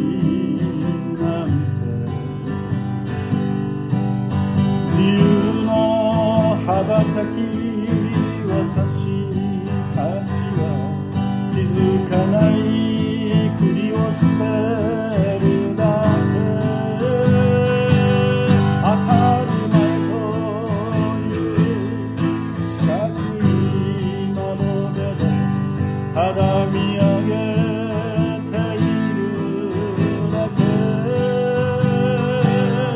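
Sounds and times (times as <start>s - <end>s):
man singing with vibrato: 0.0s - 32.9s
strummed acoustic guitar: 0.0s - 32.9s.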